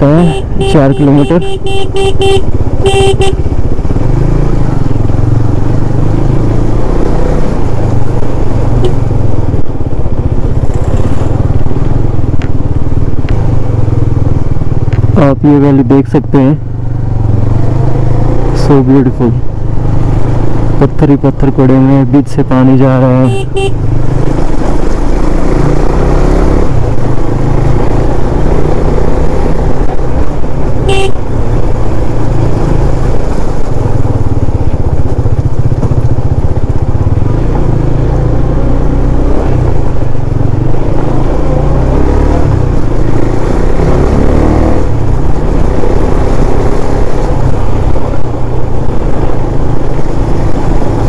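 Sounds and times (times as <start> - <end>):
motorcycle engine running: 0.0 - 51.0
short horn beep: 0.2 - 3.4, 23.2 - 23.8, 30.9 - 31.2.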